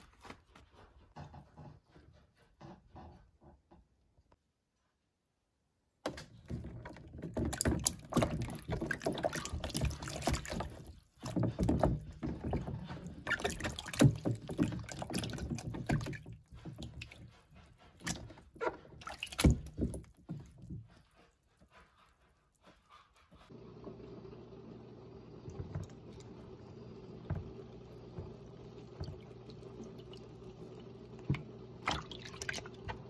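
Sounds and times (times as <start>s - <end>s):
hands sloshing water in basin: 6.4s - 21.7s, 27.2s - 33.0s.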